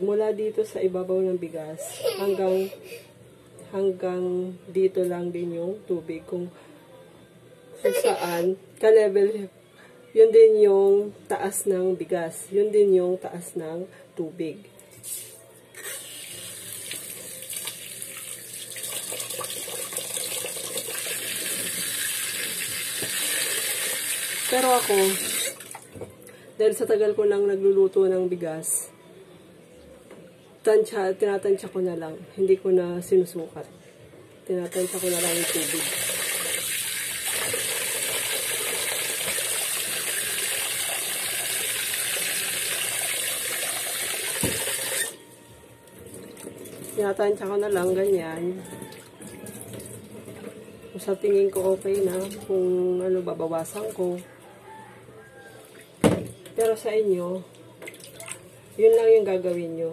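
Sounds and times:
tap water running into a pot: 16.1 - 25.9, 34.8 - 45.2.

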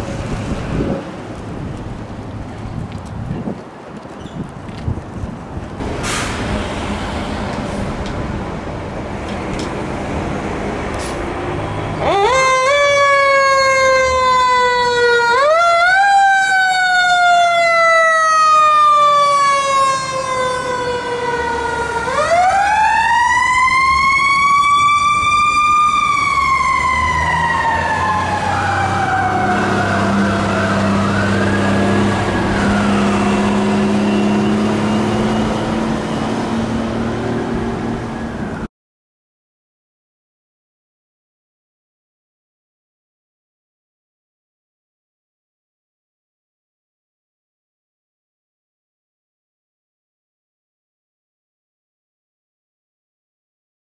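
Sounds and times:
fire truck siren: 10.2 - 38.7
faint wavering siren: 12.0 - 36.4.

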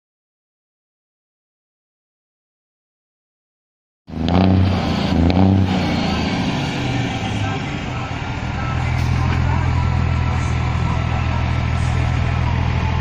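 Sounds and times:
truck diesel engine running: 4.1 - 13.0.

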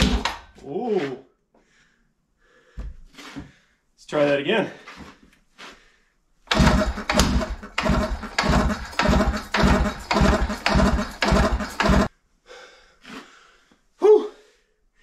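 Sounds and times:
jackhammer engine firing roughly: 6.5 - 12.1.

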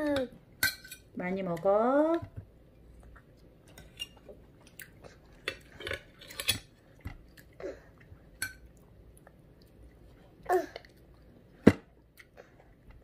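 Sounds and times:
chewing: 2.9 - 10.2.

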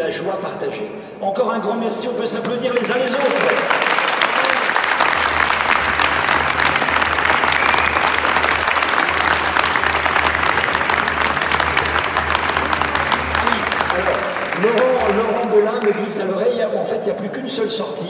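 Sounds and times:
dense clapping: 2.7 - 16.3.

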